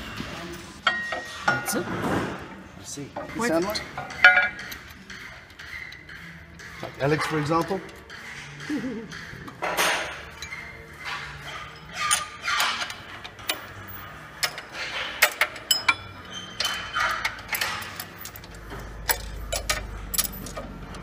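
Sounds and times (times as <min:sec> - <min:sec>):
metal tool clicks and clinks: 0:15.3 - 0:21.0.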